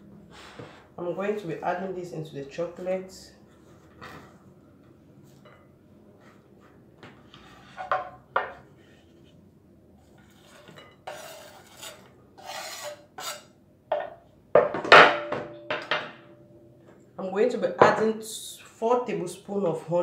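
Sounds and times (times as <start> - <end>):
knife scraping wooden board: 7.3 - 8.1, 10.2 - 13.5
knocks of wood and plate: 13.9 - 16.3.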